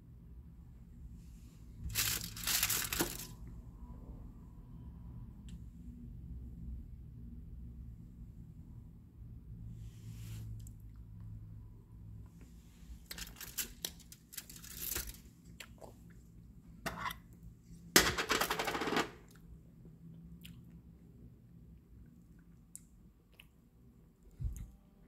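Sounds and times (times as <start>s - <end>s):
foil wrapper rustling: 1.9s - 3.3s, 13.1s - 15.2s.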